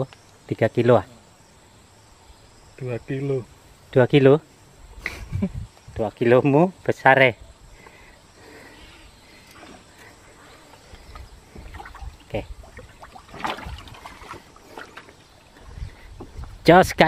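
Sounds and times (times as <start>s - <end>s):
fish splashing in water: 11.2s - 15.4s.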